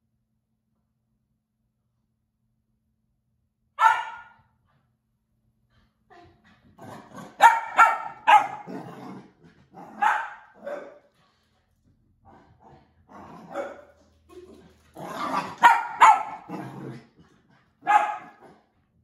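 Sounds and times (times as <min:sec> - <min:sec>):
dog barking excitedly: 0:03.8 - 0:04.4, 0:06.8 - 0:09.0, 0:09.8 - 0:11.1, 0:13.4 - 0:14.0, 0:15.0 - 0:16.8, 0:17.8 - 0:18.6.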